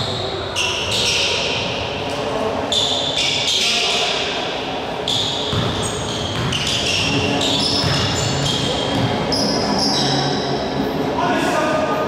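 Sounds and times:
sneakers squeaking on court: 0:00.0 - 0:01.8, 0:05.0 - 0:10.6
echoing hall background: 0:00.0 - 0:12.0
basketball bouncing: 0:05.5 - 0:09.4.

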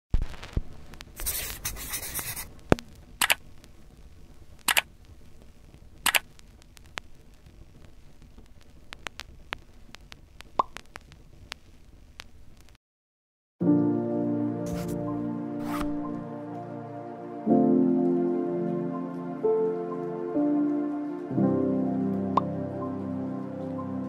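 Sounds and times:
short clicks and pops: 0:02.7 - 0:03.4, 0:04.6 - 0:04.9, 0:06.0 - 0:07.1, 0:08.4 - 0:11.6.

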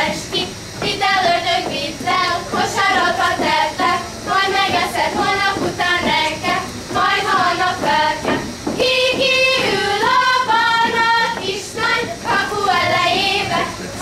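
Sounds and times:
girls singing together: 0:00.0 - 0:14.0.

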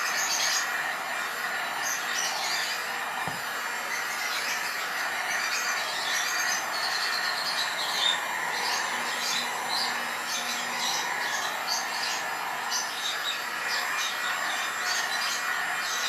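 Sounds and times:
electric dryer blowing air: 0:00.0 - 0:16.0.

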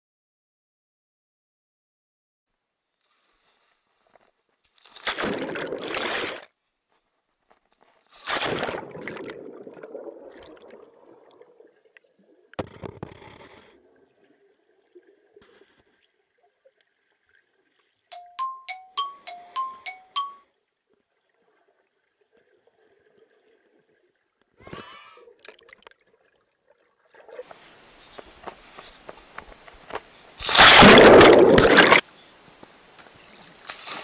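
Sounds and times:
water splashing in pool: 0:05.0 - 0:06.5, 0:08.2 - 0:12.5, 0:30.4 - 0:32.0
bell-like dings: 0:18.1 - 0:20.4.

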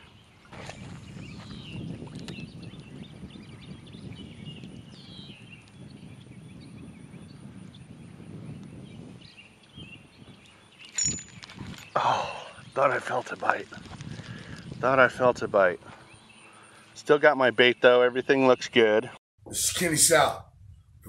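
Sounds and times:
wind buffeting microphone: 0:00.0 - 0:16.4
birds chirping: 0:00.0 - 0:19.2.

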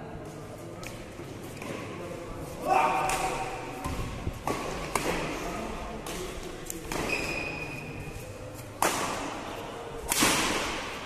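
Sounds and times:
rackets striking shuttlecock: 0:08.6 - 0:09.4, 0:10.0 - 0:11.0.

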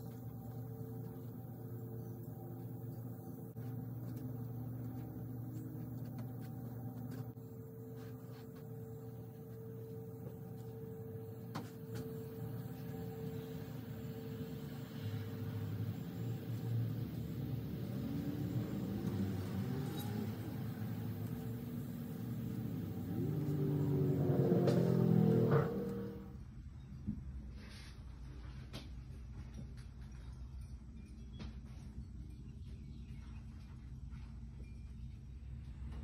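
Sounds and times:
low mechanical hum: 0:00.0 - 0:36.0
rising tone: 0:09.0 - 0:26.3.

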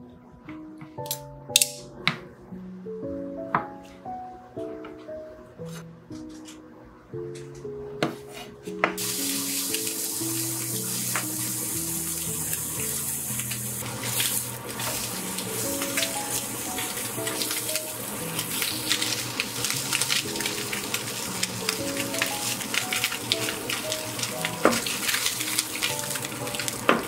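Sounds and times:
background music: 0:00.0 - 0:27.0
meat sizzling in a pan: 0:09.0 - 0:27.0.

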